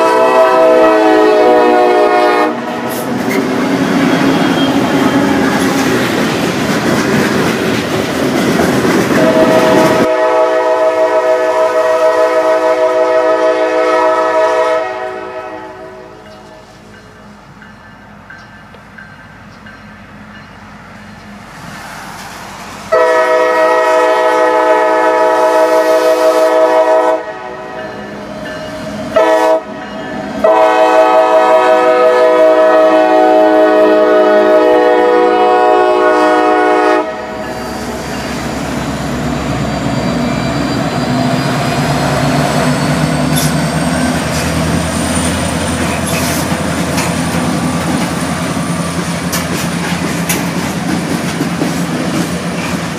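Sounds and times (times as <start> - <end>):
locomotive air horn blasts: 0.0 - 3.0, 9.2 - 16.6, 22.9 - 27.9, 29.1 - 38.0
locomotive engine rumble: 1.5 - 10.4, 37.2 - 52.9
wheels on rails: 2.9 - 10.0, 37.4 - 52.9.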